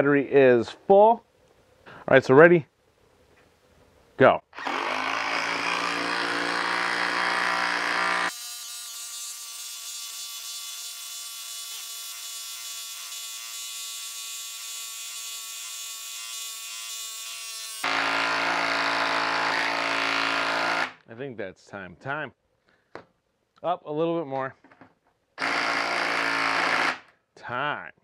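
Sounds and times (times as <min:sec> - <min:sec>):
impact driver hammering: 0:04.6 - 0:08.3, 0:17.8 - 0:21.0, 0:25.4 - 0:27.1.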